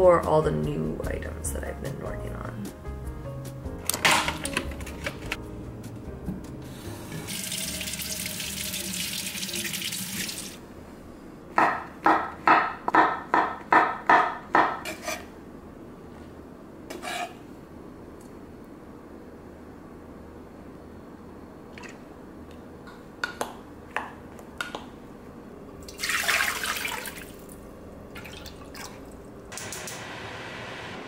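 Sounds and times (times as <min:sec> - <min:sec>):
tap water running into sink: 0:07.2 - 0:10.6.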